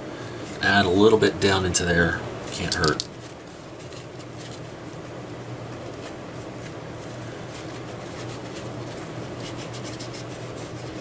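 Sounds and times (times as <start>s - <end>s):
steady low hum: 0.0s - 11.0s
light scratching and rubbing: 5.8s - 11.0s.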